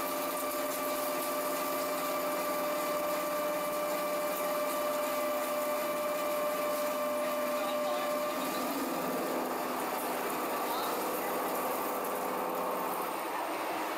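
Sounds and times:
coolant spray hissing: 0:00.0 - 0:13.9
machining whine: 0:04.8 - 0:13.9.

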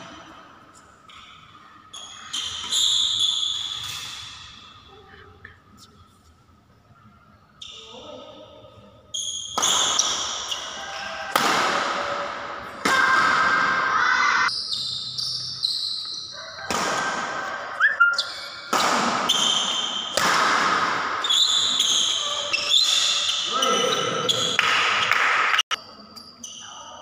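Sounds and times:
shoes squeaking on court floor: 0:01.9 - 0:04.6, 0:14.5 - 0:16.6, 0:21.1 - 0:25.2
rackets hitting shuttlecock: 0:09.3 - 0:13.8, 0:14.8 - 0:17.7, 0:18.4 - 0:23.5.

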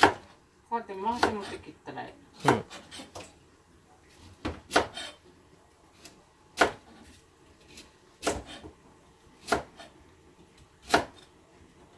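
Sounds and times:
knife cutting vegetable on board: 0:00.0 - 0:00.3, 0:01.1 - 0:01.6, 0:02.4 - 0:03.3, 0:04.2 - 0:05.2, 0:06.0 - 0:08.7, 0:09.4 - 0:10.0, 0:10.8 - 0:11.2.

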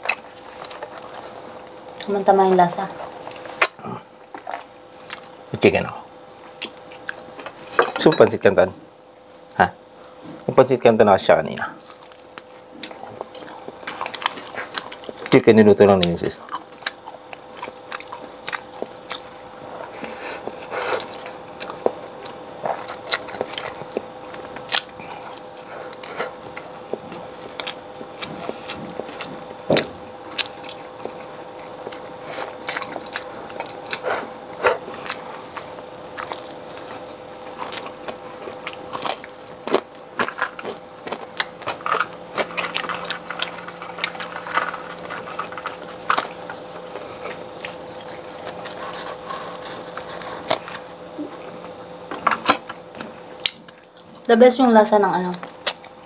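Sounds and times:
person chewing crunchy food: 0:00.0 - 0:05.6, 0:06.2 - 0:08.5, 0:11.6 - 0:54.3, 0:55.3 - 0:56.0
faint steady hum: 0:00.0 - 0:56.0.

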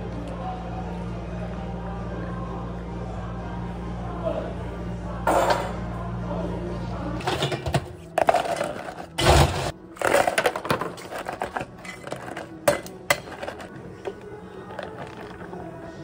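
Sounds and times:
ice cubes clattering in cups: 0:08.1 - 0:09.3, 0:10.0 - 0:13.7, 0:14.6 - 0:15.5.

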